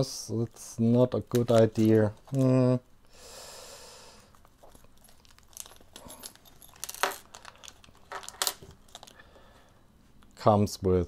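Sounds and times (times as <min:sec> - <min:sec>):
plastic bag crinkling: 0:04.3 - 0:09.4.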